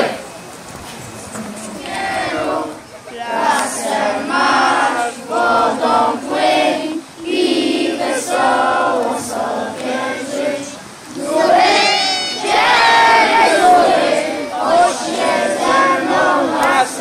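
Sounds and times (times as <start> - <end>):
children singing together: 1.4 - 17.0
children shouting: 10.4 - 17.0.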